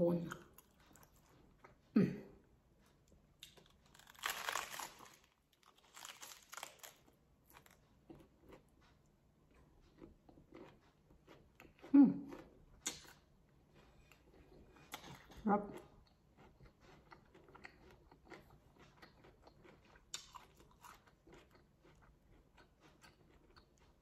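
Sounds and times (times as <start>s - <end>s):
chewing crackles: 2.8s - 24.0s
crunching lettuce: 3.4s - 7.8s.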